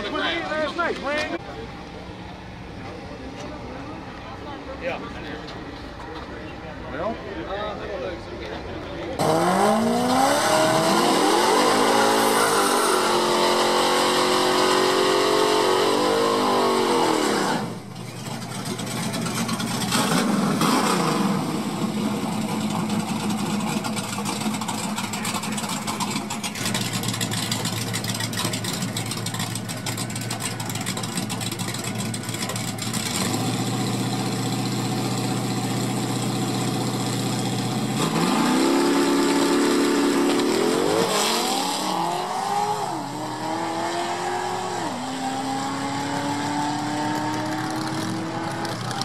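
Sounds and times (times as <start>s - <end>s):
race car engine revving: 9.2s - 49.0s
engine idling: 17.8s - 20.4s, 21.4s - 38.0s.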